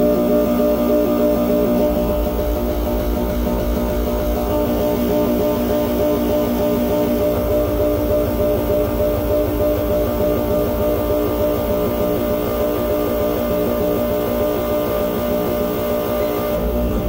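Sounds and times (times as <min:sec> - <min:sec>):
electronic drone of held tones: 0:00.0 - 0:17.0.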